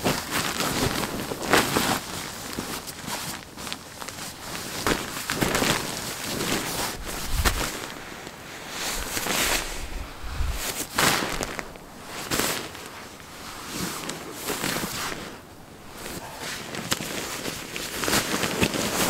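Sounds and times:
nylon sleeping bag rustling: 0.0 - 19.0
dull handling thumps: 6.4 - 7.8.

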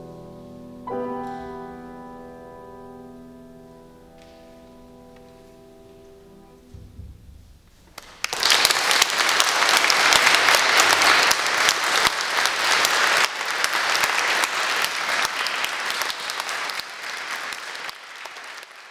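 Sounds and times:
audience applause: 8.0 - 18.9.

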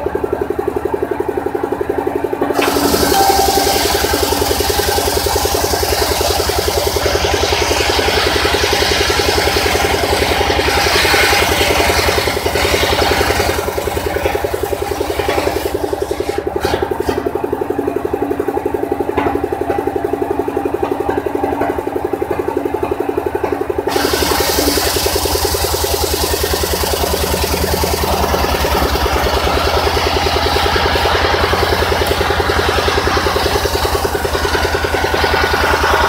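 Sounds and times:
engine running: 0.0 - 36.0
saw blade whining in wood: 2.6 - 13.8, 23.9 - 36.0.

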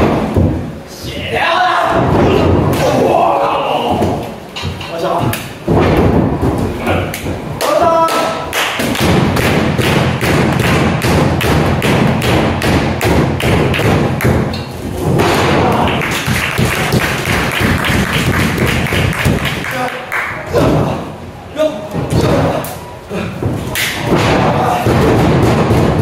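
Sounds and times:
thuds and slaps on wrestling ring: 5.6 - 6.7, 23.4 - 26.0.

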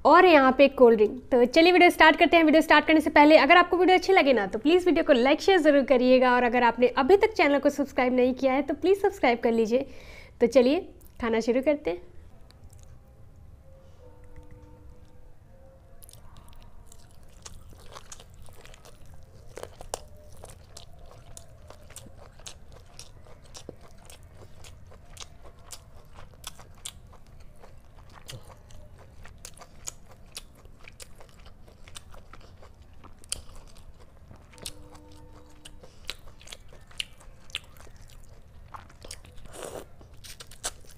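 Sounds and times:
person chewing with mouth clicks: 12.4 - 13.0, 16.0 - 40.9.

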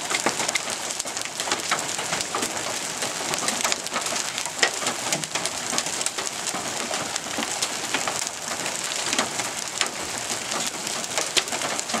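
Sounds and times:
hailstones clicking: 0.0 - 12.0
rain hissing: 0.0 - 12.0.

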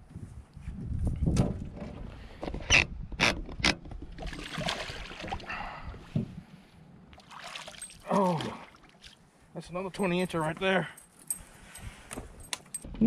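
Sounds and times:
fish splashing at water surface: 4.2 - 5.5, 7.2 - 9.2.

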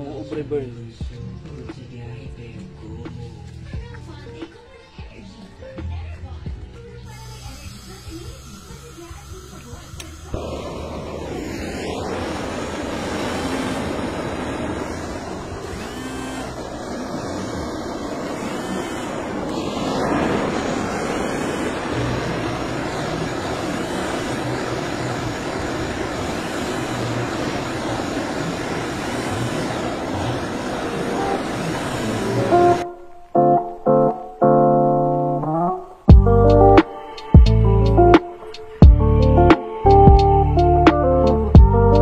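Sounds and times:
blowtorch hissing: 7.0 - 33.0.

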